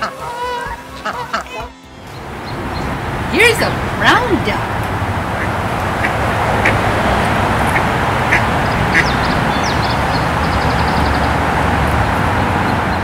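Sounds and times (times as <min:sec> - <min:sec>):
duck quacking: 0:00.0 - 0:01.7, 0:05.4 - 0:06.8, 0:07.7 - 0:09.3.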